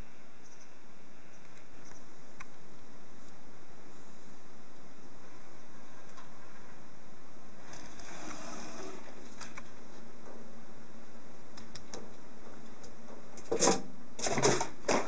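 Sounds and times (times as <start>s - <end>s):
knocks and rustles: 11.8s - 15.0s.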